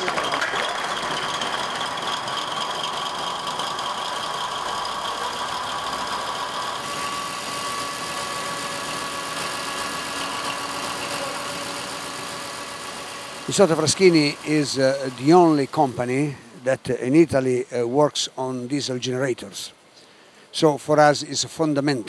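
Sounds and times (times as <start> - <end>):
high whine: 0.0 - 17.3
diesel generator running: 0.0 - 18.8.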